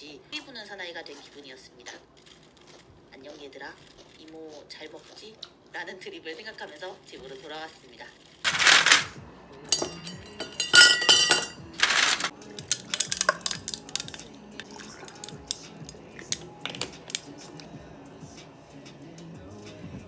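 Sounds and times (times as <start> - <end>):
ice cubes clinking into tumbler: 8.5 - 14.3.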